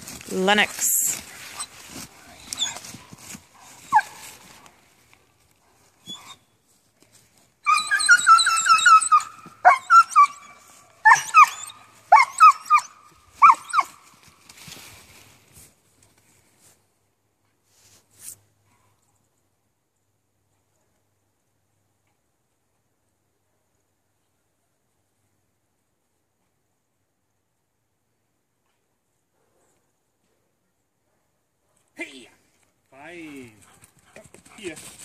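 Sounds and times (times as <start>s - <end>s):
puppy whining: 2.4s - 2.8s, 7.6s - 14.0s.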